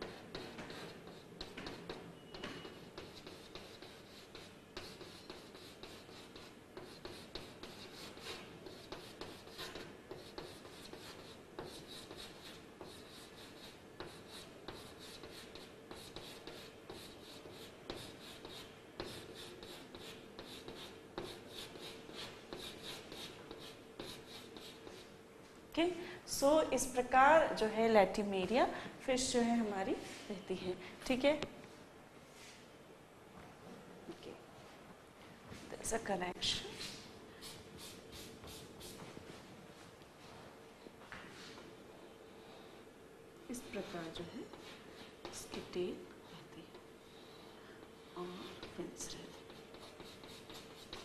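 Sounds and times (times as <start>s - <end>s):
chalk tapping and scratching on blackboard: 0.0s - 25.1s, 36.7s - 39.2s, 43.5s - 45.8s, 47.1s - 51.0s.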